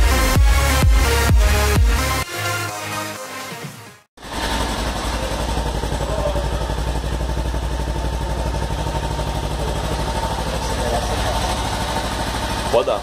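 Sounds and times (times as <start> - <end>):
motorcycle engine idling: 4.2 - 13.0.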